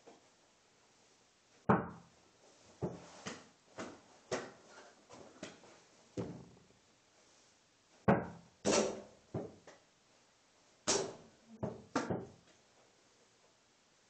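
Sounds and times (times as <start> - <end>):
ball knocking on hoop backboard: 8.1 - 9.5.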